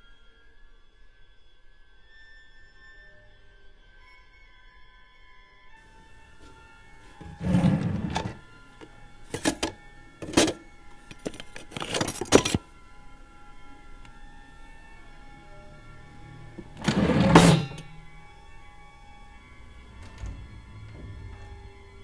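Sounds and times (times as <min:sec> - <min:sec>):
faint sustained music tones: 0:00.0 - 0:22.0
drawer pulled open: 0:07.2 - 0:08.4, 0:09.3 - 0:12.6, 0:16.6 - 0:17.9
metal utensils clattering: 0:07.2 - 0:08.4, 0:09.3 - 0:12.7, 0:16.6 - 0:18.0.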